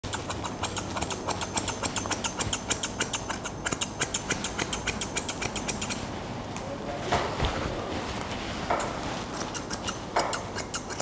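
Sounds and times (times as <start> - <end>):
scissors snipping hair: 0.0 - 6.0, 9.4 - 11.0.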